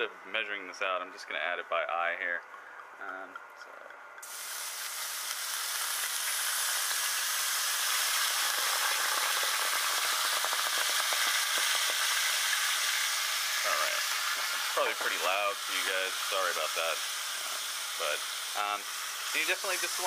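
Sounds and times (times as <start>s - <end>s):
wine sizzling in a hot pan: 4.2s - 20.0s.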